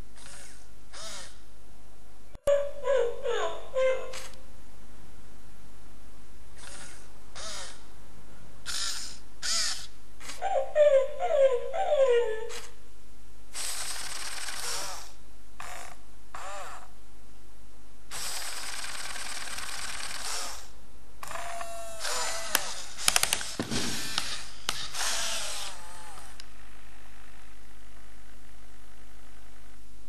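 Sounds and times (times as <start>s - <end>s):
robot servo motors whirring: 0.2s - 1.4s, 6.6s - 7.8s, 13.6s - 15.1s, 18.2s - 20.7s, 21.3s - 26.4s.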